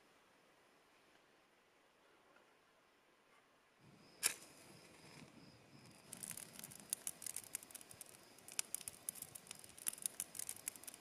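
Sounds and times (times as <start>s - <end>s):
faint hiss: 0.0s - 11.0s
campfire crackling and popping: 5.9s - 11.0s.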